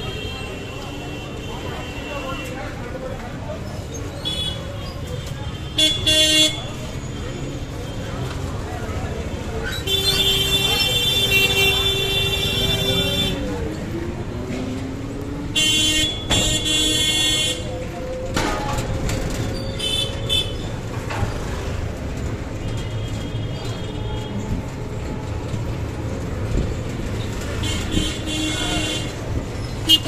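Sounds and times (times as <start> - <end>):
engine and road rumble: 0.0 - 30.0
vehicle horns honking: 5.6 - 6.8, 9.8 - 13.5, 15.6 - 17.7, 27.5 - 29.2, 29.8 - 30.0.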